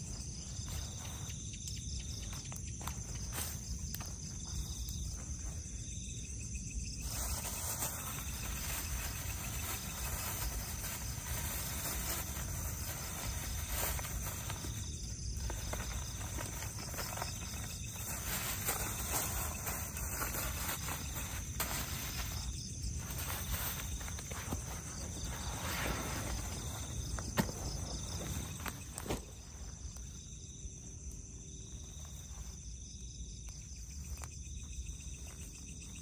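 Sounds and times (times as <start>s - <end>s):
insects buzzing: 0.0s - 36.0s
soft rustles: 7.0s - 30.2s.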